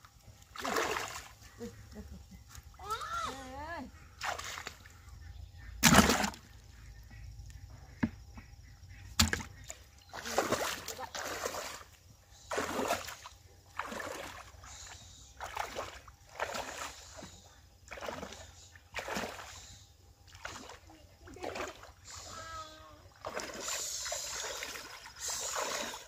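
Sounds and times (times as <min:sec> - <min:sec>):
pond water splashing and sloshing: 0:00.0 - 0:26.0
hand net sweeping through water: 0:00.5 - 0:01.4, 0:12.5 - 0:14.6, 0:23.2 - 0:26.0.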